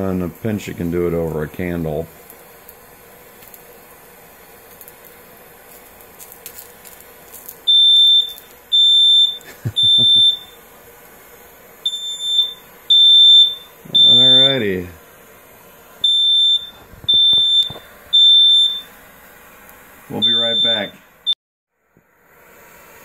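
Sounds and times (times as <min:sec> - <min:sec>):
propane torch hissing: 0:00.0 - 0:23.0
smoke alarm beeping: 0:07.4 - 0:10.7, 0:11.8 - 0:14.7, 0:16.0 - 0:19.0, 0:20.1 - 0:21.4.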